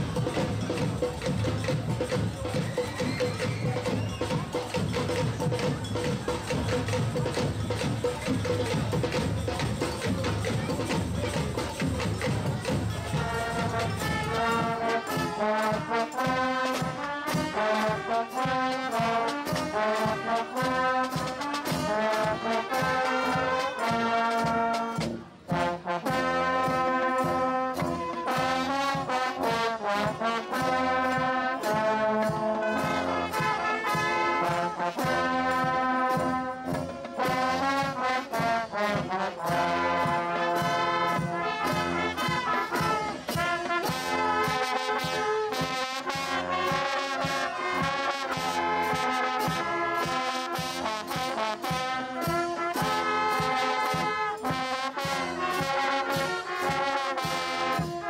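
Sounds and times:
brass band playing upbeat tune: 0:00.0 - 0:58.0.

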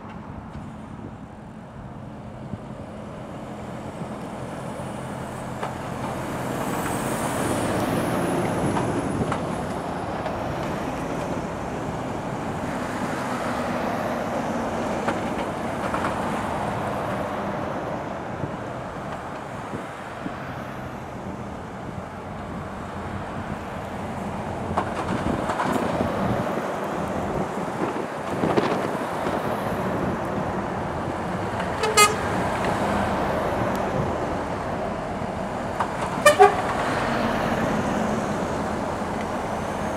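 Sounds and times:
heavy lorries driving past: 0:00.0 - 0:39.9
horn toot: 0:31.8 - 0:32.3, 0:36.2 - 0:36.7.

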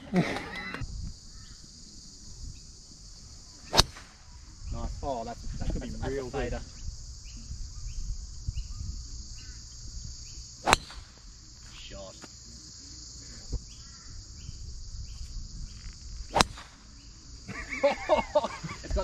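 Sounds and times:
insects chirring: 0:00.0 - 0:19.0
golf club striking ball: 0:03.7 - 0:04.3, 0:10.6 - 0:11.2, 0:16.3 - 0:16.8.

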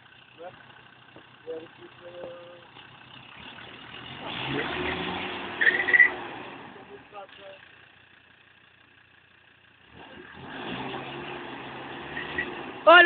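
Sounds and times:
engine revving under load: 0:01.4 - 0:07.7, 0:09.8 - 0:13.0.

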